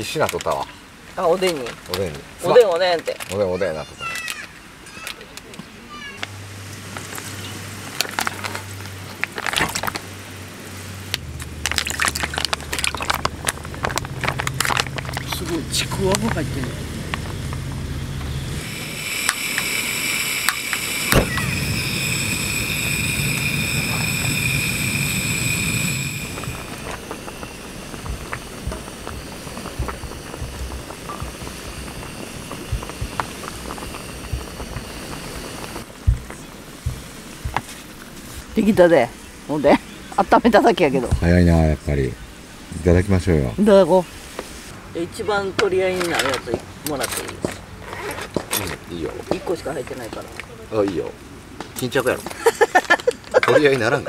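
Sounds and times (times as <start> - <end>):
sharp crackles: 11.0 - 38.8
broth pouring into a metal pot: 11.2 - 16.1, 18.5 - 35.9.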